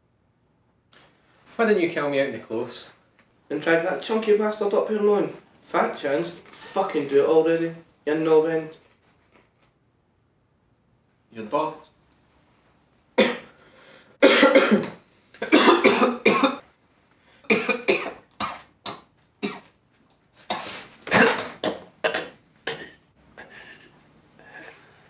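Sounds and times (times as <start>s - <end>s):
man coughing and choking: 13.2s - 13.6s, 14.2s - 16.6s, 17.5s - 19.7s, 20.5s - 23.9s.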